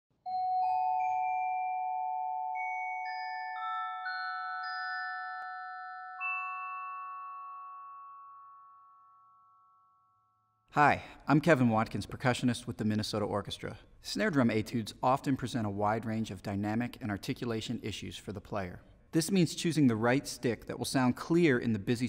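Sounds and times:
bell-like mallet percussion jingle: 0:00.1 - 0:10.7.

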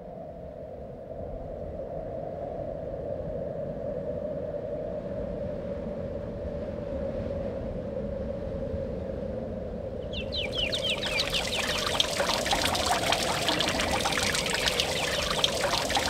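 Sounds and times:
fountain water splashing: 0:10.2 - 0:16.0.

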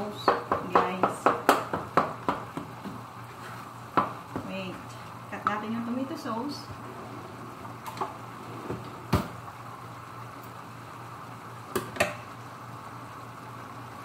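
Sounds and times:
steady low hum: 0:00.0 - 0:14.0
pot simmering: 0:07.5 - 0:14.0.

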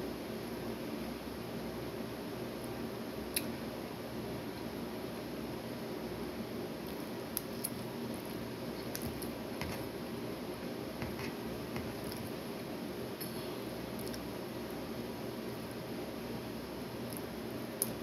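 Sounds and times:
steady background hiss: 0:00.0 - 0:18.0
chewing: 0:13.9 - 0:14.3.

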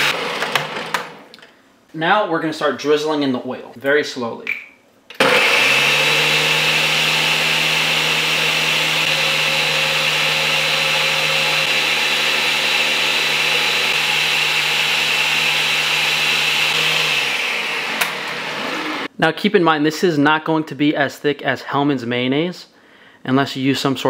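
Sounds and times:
blender running at full speed: 0:00.0 - 0:01.1, 0:05.2 - 0:19.1.

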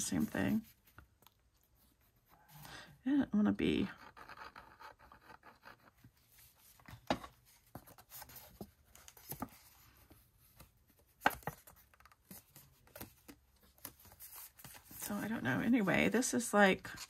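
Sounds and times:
paper rustling and crinkling: 0:06.3 - 0:17.0.

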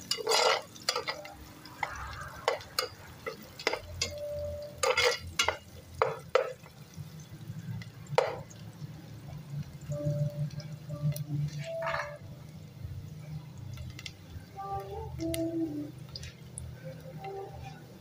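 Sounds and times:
metal spoon scraping a pot: 0:00.0 - 0:06.6, 0:11.5 - 0:12.2
spoon clanking against pot: 0:00.0 - 0:06.7, 0:08.2 - 0:08.6, 0:11.5 - 0:12.2
food frying: 0:00.0 - 0:18.0.

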